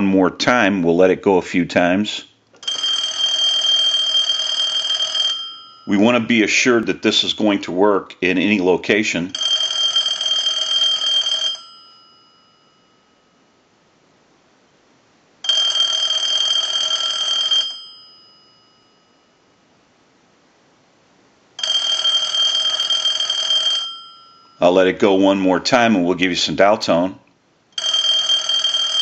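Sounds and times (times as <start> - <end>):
telephone ringing: 2.6 - 6.7, 9.2 - 13.3, 15.4 - 19.5, 21.6 - 25.4, 27.8 - 29.0.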